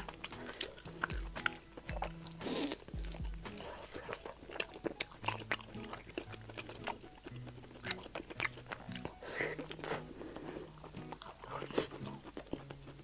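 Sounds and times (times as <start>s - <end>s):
person chewing and crunching: 0.0s - 13.0s
soft background music: 0.0s - 13.0s.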